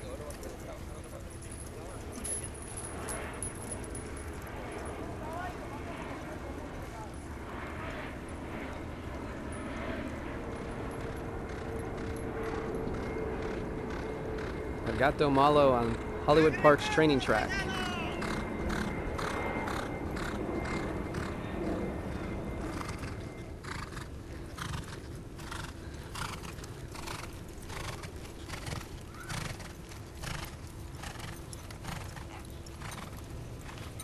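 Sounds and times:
horse hoofbeats on dirt: 10.6 - 15.0, 18.2 - 34.0.

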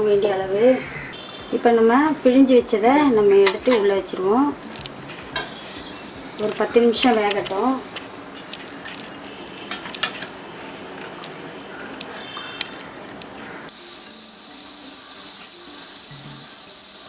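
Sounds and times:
high-pitched steam whistle: 13.7 - 17.0.

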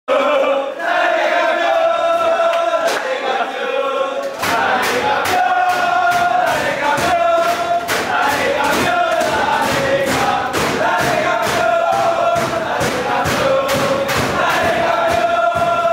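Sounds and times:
men chanting in unison: 0.1 - 15.9
steady beat of sharp hits: 4.4 - 15.9.

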